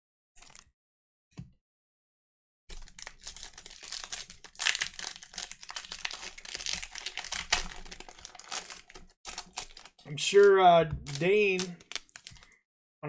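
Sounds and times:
plastic wrappers crinkling and tearing: 2.7s - 12.6s.

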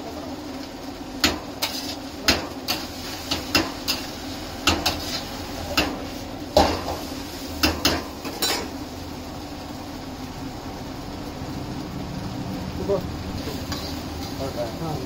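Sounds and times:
metal spatula scraping a wok: 1.6s - 2.1s, 2.7s - 6.2s, 13.4s - 14.4s.

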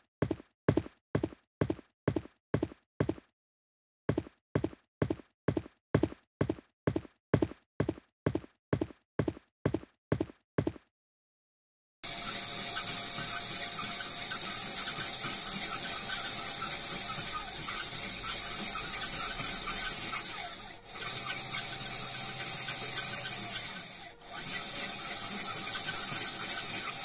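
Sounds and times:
gears and chain turning: 12.0s - 27.0s
mechanical squeal: 12.0s - 27.0s
sharp mechanical clicks: 12.0s - 27.0s.

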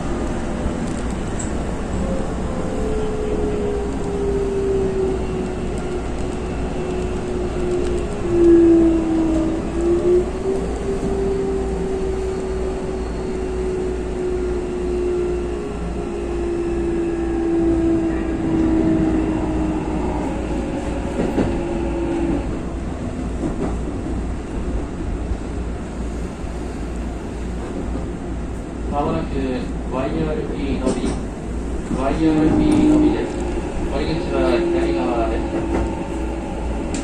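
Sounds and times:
rail clicks: 0.2s - 25.5s, 30.5s - 37.0s.

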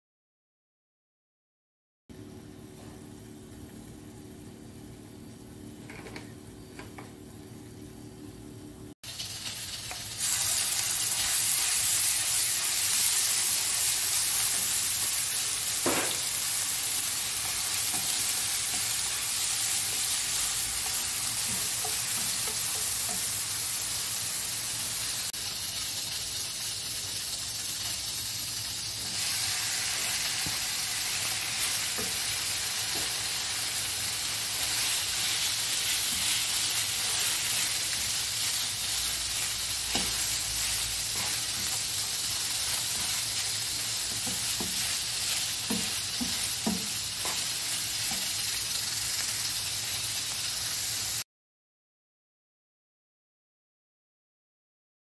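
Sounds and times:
hot oil sizzling in a frying pan: 9.0s - 51.3s
spatula scraping and tapping pan: 39.9s - 40.4s, 41.1s - 41.9s, 44.0s - 48.3s.

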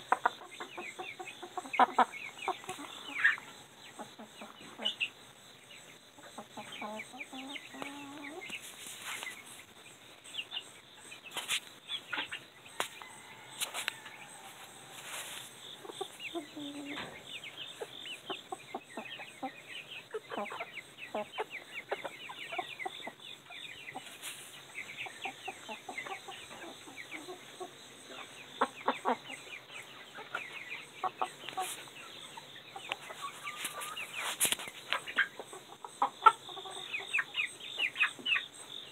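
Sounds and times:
chickens squawking: 0.0s - 5.1s, 13.1s - 23.2s, 28.6s - 38.5s
chickens clucking and chirping: 0.0s - 38.9s.

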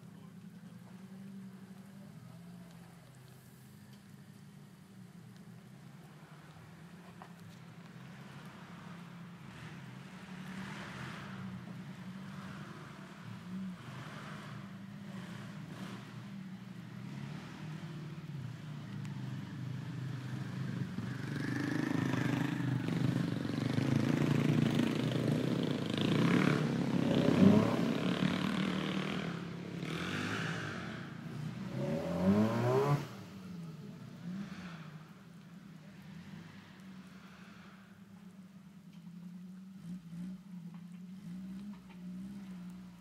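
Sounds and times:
off-road vehicle engine revving: 8.3s - 35.3s, 39.1s - 43.0s.

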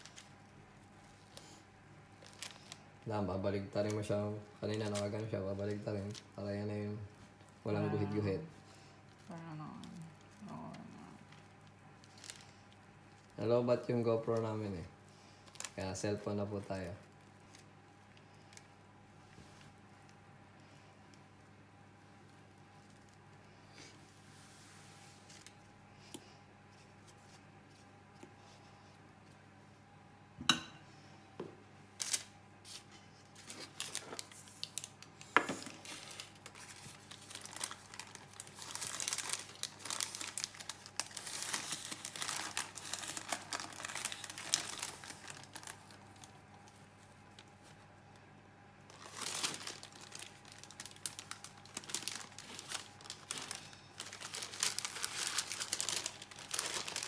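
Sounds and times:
baking paper crinkling: 0.0s - 29.5s, 32.0s - 57.0s.

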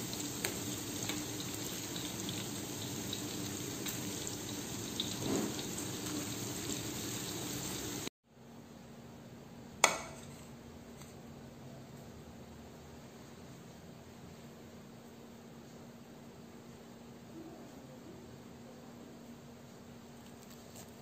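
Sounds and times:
food deep-frying in oil: 0.0s - 8.1s.

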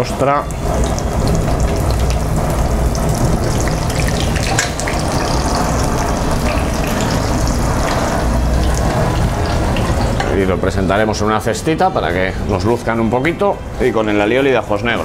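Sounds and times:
steady low hum: 0.0s - 14.0s
food sizzling in oil: 0.4s - 10.2s.

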